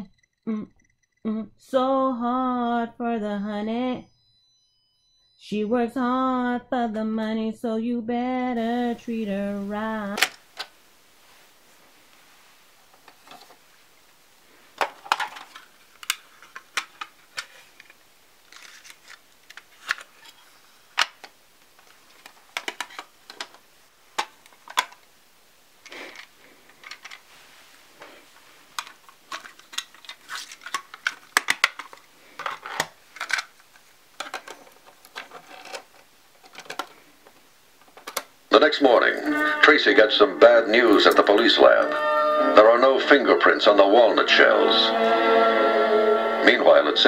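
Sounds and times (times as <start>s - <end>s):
plastic cassette cases rattling: 10.0s - 10.8s, 14.7s - 25.1s, 25.8s - 27.3s, 28.7s - 38.4s.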